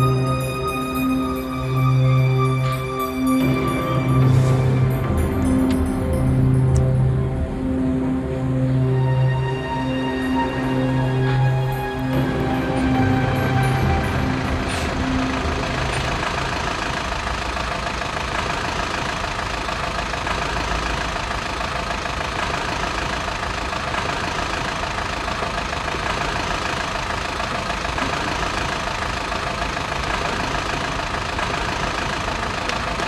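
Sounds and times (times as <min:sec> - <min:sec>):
bus diesel engine idling: 0:00.0 - 0:33.0.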